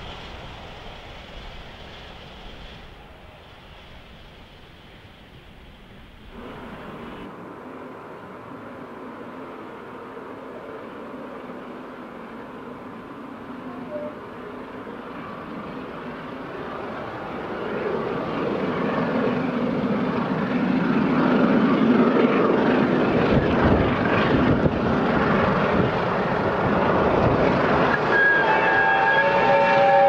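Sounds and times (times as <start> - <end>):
steam locomotive exhaust roar: 0.0 - 30.0.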